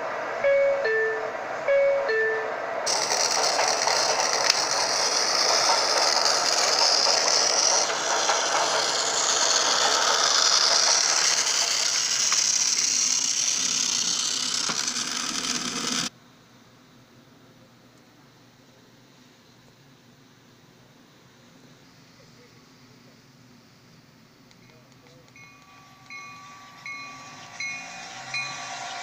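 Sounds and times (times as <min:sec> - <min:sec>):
two-tone door chime: 0:00.4 - 0:02.6, 0:25.4 - 0:29.0
toy train motor whirring: 0:02.9 - 0:16.1, 0:25.4 - 0:29.0.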